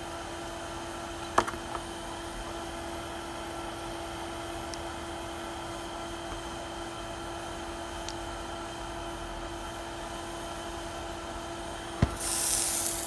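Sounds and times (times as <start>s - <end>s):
steady hiss: 12.0s - 13.0s
loud burst of hissing: 12.1s - 13.0s.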